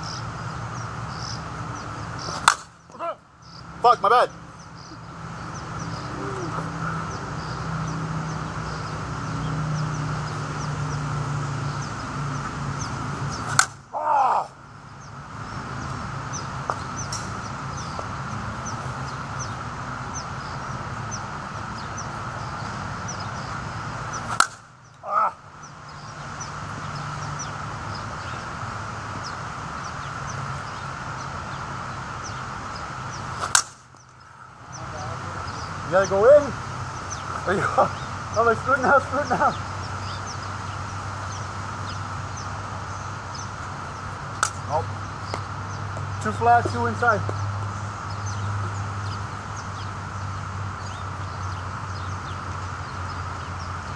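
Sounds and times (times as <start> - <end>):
bat striking a softball: 2.3 - 2.8, 13.4 - 13.8, 24.2 - 24.7, 33.4 - 33.9, 44.4 - 44.6.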